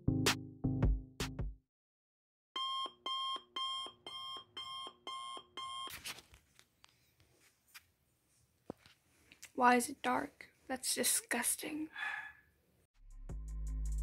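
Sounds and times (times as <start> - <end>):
alarm clock beeping: 2.6 - 5.9.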